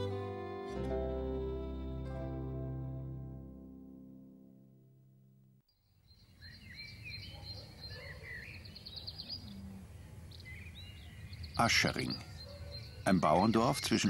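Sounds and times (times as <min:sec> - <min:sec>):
plucked-string theme music: 0:00.0 - 0:05.6
birds chirping and singing: 0:05.7 - 0:14.0.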